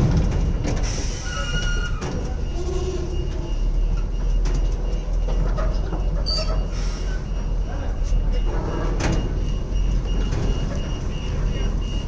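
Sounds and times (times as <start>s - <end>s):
truck diesel engine rumbling: 0.0s - 12.0s
high metallic squeal: 1.1s - 3.2s, 6.2s - 7.0s.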